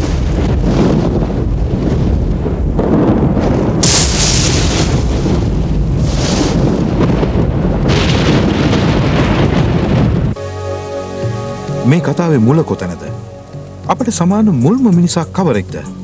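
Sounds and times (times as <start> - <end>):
deep continuous rumble: 0.0 - 10.4
rushing hissing noise: 3.8 - 5.3.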